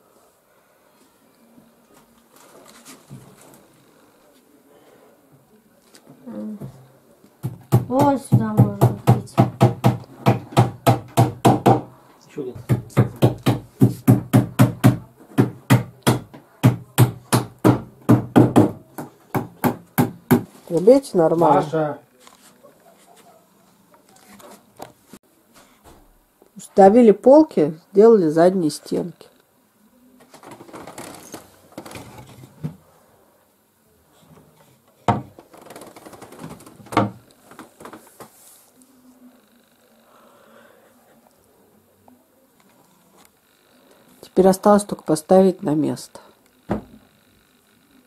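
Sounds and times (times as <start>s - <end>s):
hammer driving nails: 7.4s - 11.9s
sharp wooden knocks: 7.4s - 11.9s, 12.6s - 20.5s, 35.1s - 37.2s.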